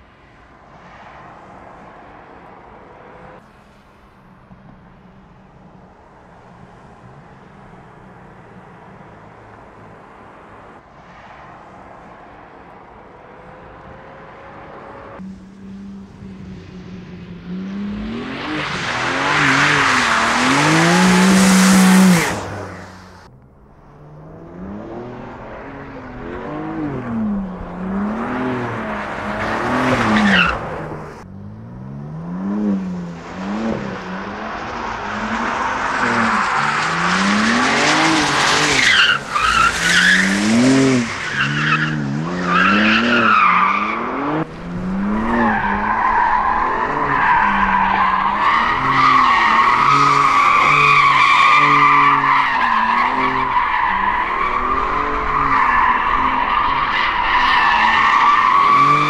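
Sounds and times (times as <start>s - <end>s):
car engine revving hard: 17.5s - 23.3s, 31.4s - 56.5s.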